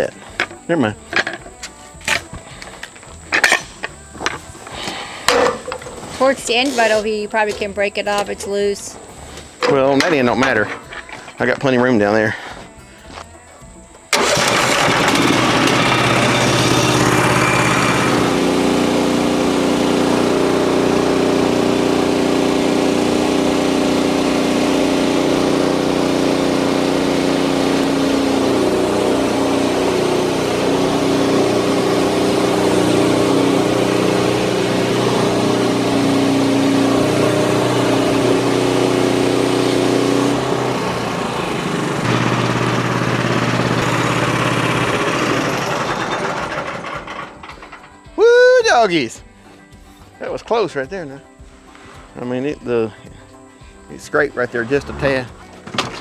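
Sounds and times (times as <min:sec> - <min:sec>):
small gasoline engine running: 0:14.1 - 0:47.8
bandsaw blade cutting wood: 0:14.4 - 0:47.8.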